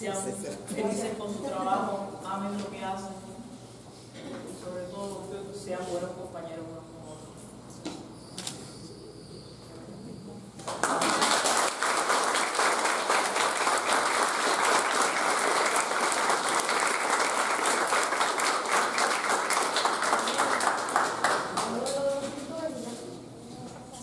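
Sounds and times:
audience applauding: 10.6s - 22.0s.

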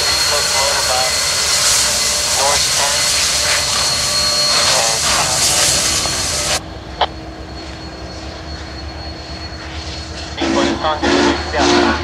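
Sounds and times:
loud rushing hiss: 0.0s - 6.6s
locomotives idling: 0.0s - 12.0s
low hum: 0.0s - 12.0s.

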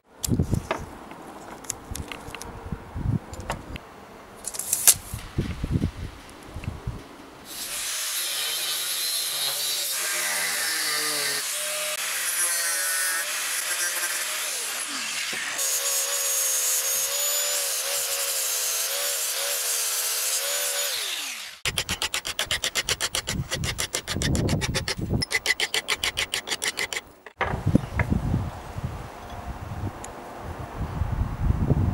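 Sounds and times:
angle grinder cutting steel: 7.5s - 27.4s.

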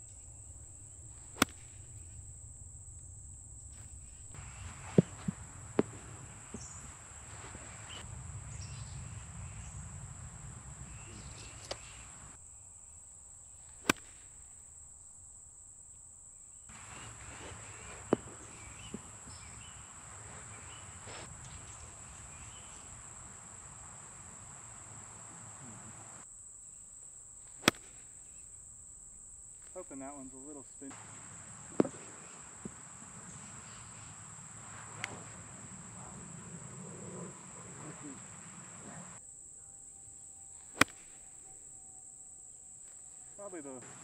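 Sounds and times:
crickets droning: 0.0s - 44.0s
golf club striking ball: 0.1s - 12.4s, 13.8s - 14.4s, 16.7s - 25.1s, 27.6s - 28.0s, 40.7s - 41.4s.

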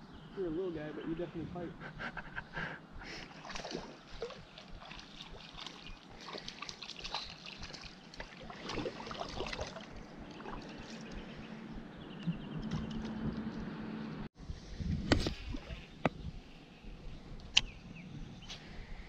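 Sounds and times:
water sloshing and splashing: 3.3s - 11.6s.

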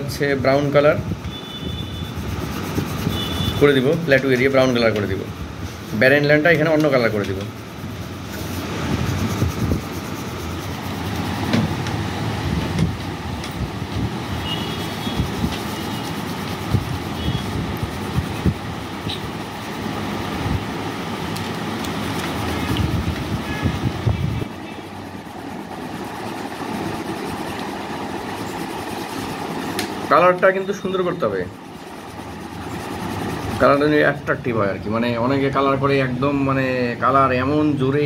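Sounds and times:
pencil scratching on paper: 2.1s - 3.6s, 7.5s - 11.5s, 14.8s - 18.4s.

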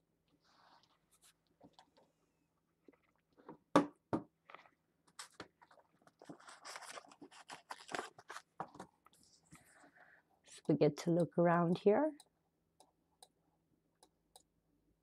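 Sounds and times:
soft rustle: 0.3s - 2.2s.

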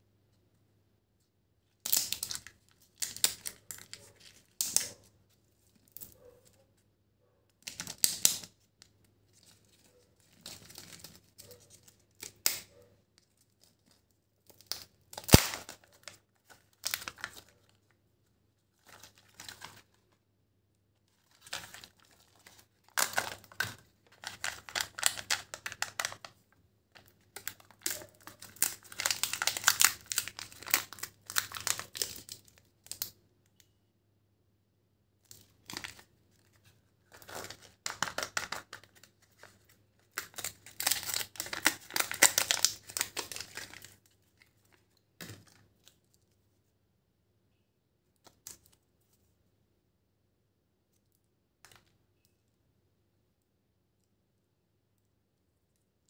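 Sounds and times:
foil and plastic wrappers crinkling: 14.7s - 17.9s, 21.2s - 26.3s, 27.0s - 33.0s, 35.6s - 45.6s.

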